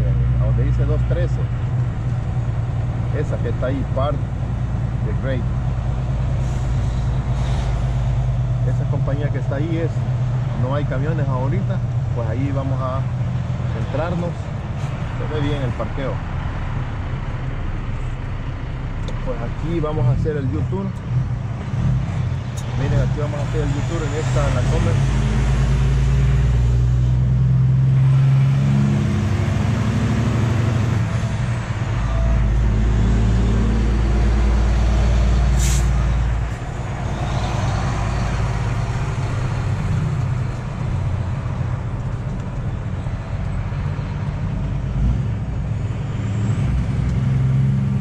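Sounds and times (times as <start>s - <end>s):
truck diesel engine running: 13.0s - 48.0s
air brake hiss: 35.6s - 36.0s.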